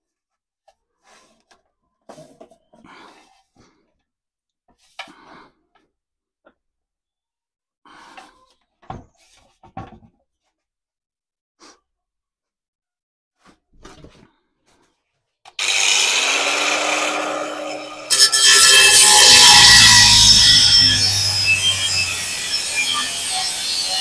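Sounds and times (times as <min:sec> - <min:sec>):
angle grinder whining: 0:15.6 - 0:24.0
grinder disc cutting steel pipe: 0:15.6 - 0:24.0.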